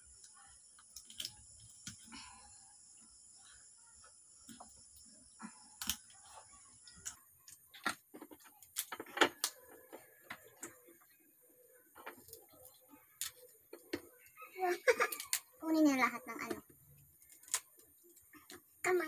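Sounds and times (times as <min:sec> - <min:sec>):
crab shell cracking: 0:00.8 - 0:02.1, 0:05.8 - 0:06.2, 0:06.9 - 0:09.6, 0:12.1 - 0:14.0, 0:14.9 - 0:15.6, 0:17.0 - 0:18.7.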